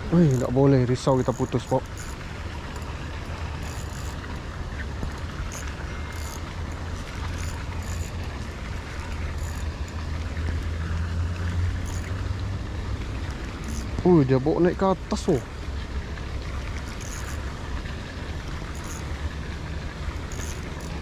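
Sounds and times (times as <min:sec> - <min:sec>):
faint high ticks: 0:01.1 - 0:10.7, 0:11.8 - 0:12.2, 0:13.2 - 0:14.1, 0:16.9 - 0:17.4, 0:18.7 - 0:19.1, 0:20.3 - 0:21.0.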